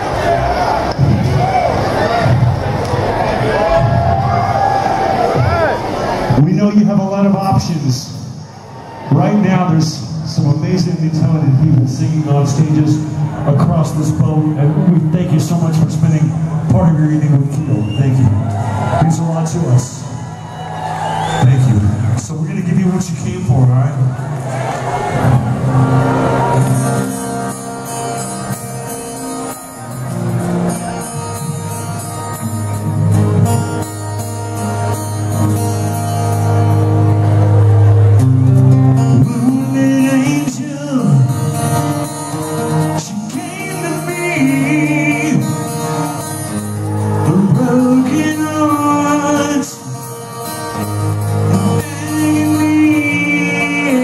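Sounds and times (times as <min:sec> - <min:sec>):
electric guitars: 0:08.1 - 0:54.0
hard rock band playing: 0:25.1 - 0:54.0.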